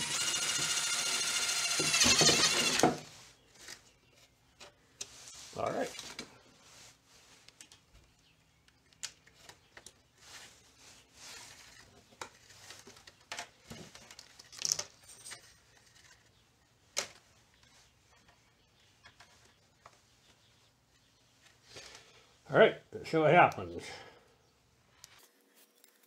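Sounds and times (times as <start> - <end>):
clicks and rustles of small parts: 7.4 - 10.7, 11.3 - 18.4, 19.0 - 20.4, 24.9 - 26.0.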